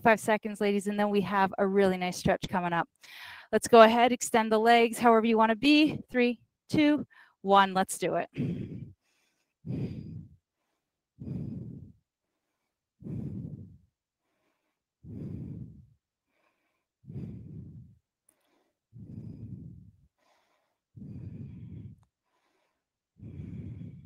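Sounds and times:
woman breathing hard: 8.3s - 24.0s.

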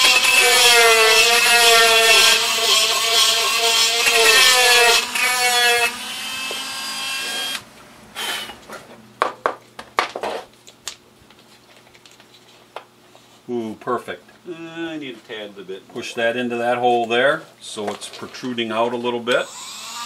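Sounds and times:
rotary tool grinding wood: 0.0s - 7.6s, 19.4s - 20.0s.

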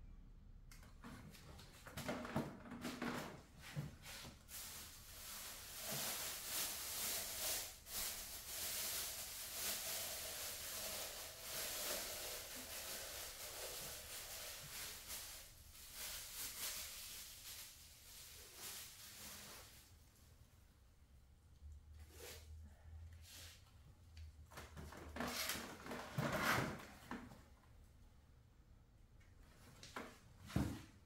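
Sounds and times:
rustling and handling noises: 0.8s - 20.5s.

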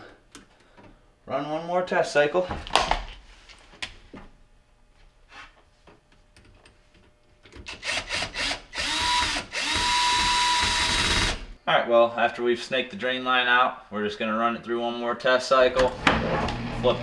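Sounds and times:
power driver motor whine: 7.7s - 11.5s, 15.8s - 17.0s.

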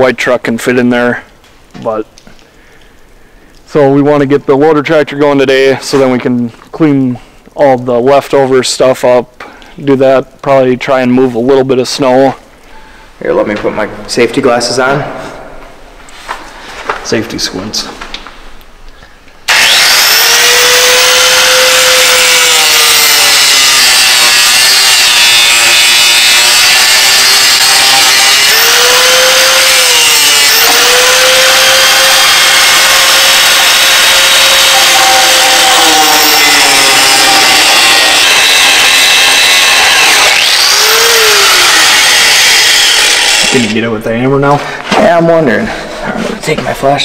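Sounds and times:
angle grinder grinding metal: 19.5s - 43.8s.

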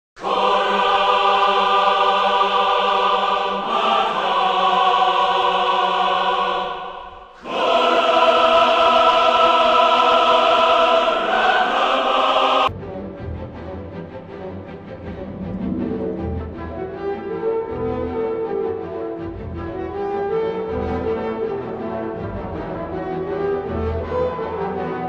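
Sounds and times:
choir singing held chords: 0.2s - 12.7s.

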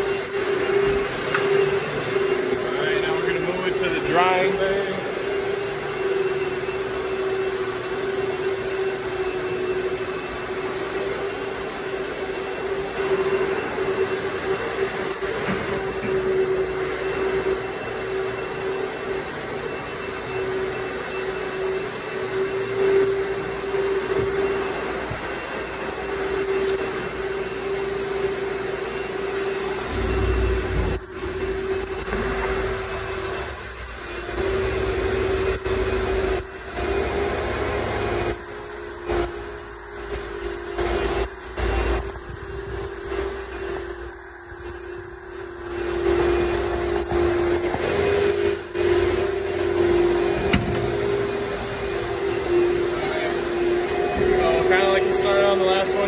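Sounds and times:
machine motor hum: 0.0s - 56.0s.

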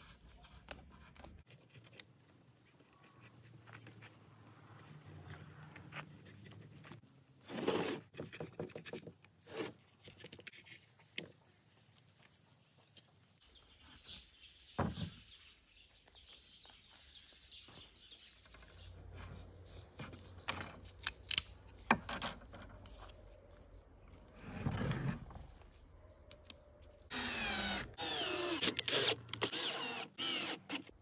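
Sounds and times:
cordless drill driving screws: 27.1s - 30.9s.

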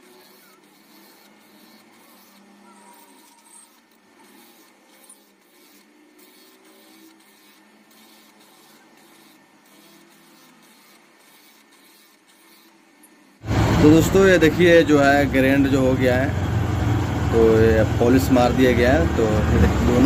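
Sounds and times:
grinding stone motor whirring: 0.0s - 20.0s.

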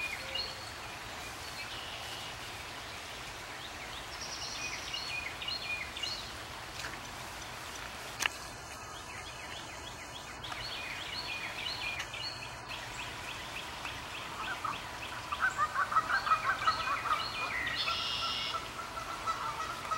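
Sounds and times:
birds chirping: 0.0s - 19.9s
rain falling on pond: 0.0s - 19.9s
birds calling loudly: 7.4s - 19.9s.

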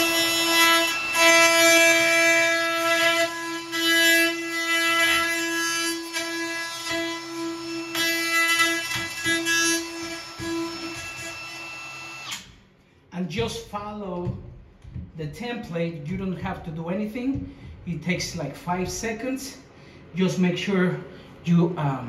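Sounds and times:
router whining cutting wood: 0.0s - 5.5s, 6.1s - 12.5s.

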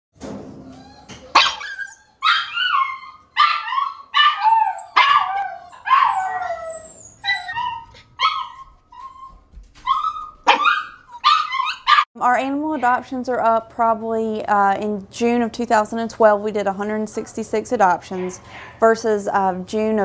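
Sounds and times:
dogs barking and yelping: 0.4s - 12.1s, 17.1s - 18.7s.

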